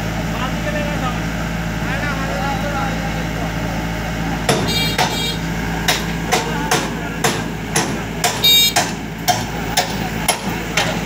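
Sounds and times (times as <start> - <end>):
diesel engine running: 0.0 - 11.0
sharp metallic knocks: 4.5 - 11.0.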